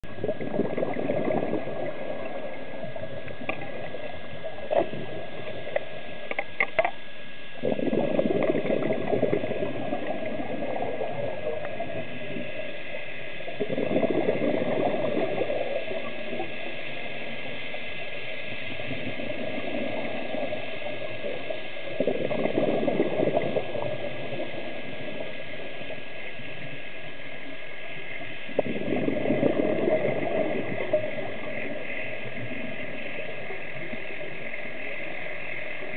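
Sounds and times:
bubbly underwater exhalations: 0.0 - 6.0, 7.6 - 12.6, 13.5 - 16.6, 18.8 - 25.3, 28.5 - 34.6
steady underwater rush: 0.0 - 35.9.

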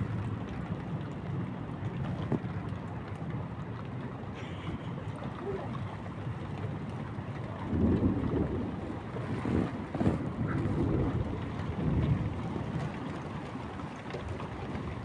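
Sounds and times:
thunder rumbling: 7.5 - 13.0.

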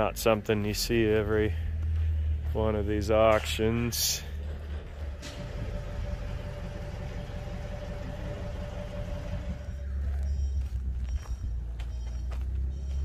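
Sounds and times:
machinery engine running: 0.0 - 13.0.

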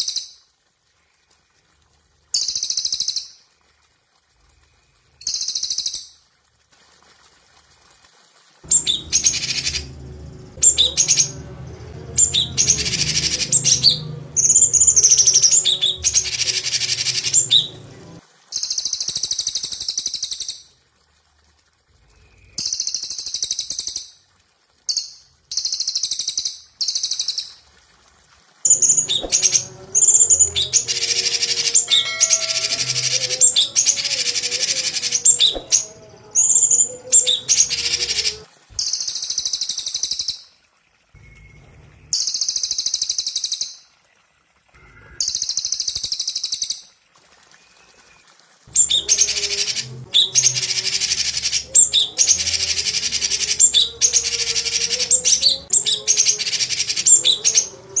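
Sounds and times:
birds trilling: 8.7 - 10.0, 28.7 - 38.4
higher hissy bird trills: 8.7 - 10.0, 12.2 - 18.0, 28.7 - 38.4.

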